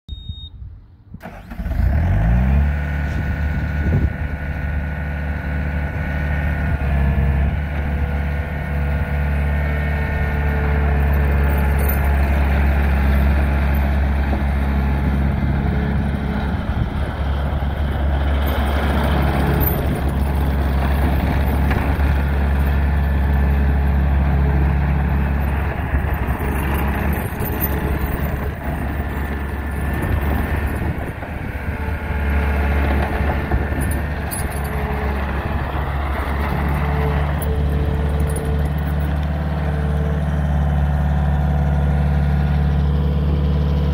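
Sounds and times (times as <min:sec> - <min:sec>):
diesel engine starting: 0:00.9 - 0:43.9.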